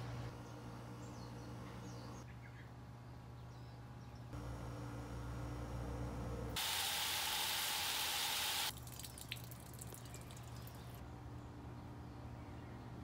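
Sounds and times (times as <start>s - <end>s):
steady hiss of spray: 6.6s - 8.7s.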